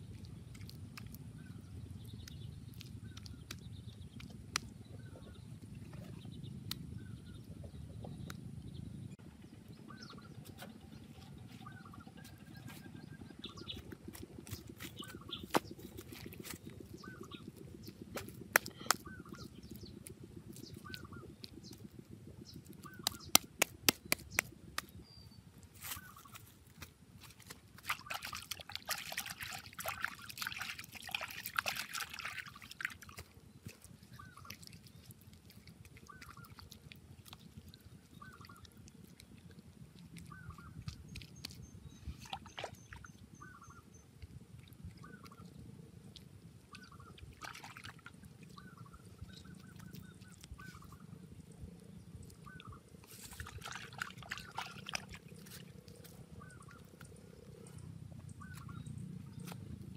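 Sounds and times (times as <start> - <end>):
wet mud slapping: 0.0 - 5.3, 12.2 - 25.0, 26.0 - 43.1, 44.7 - 51.0, 52.3 - 57.6
wet mud squelching: 0.0 - 7.4, 10.0 - 59.9.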